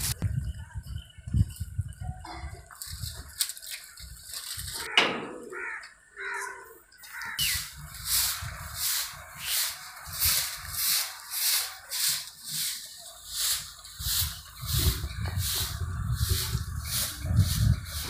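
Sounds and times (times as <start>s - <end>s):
hand broom sweeping a hard floor: 7.5s - 18.0s.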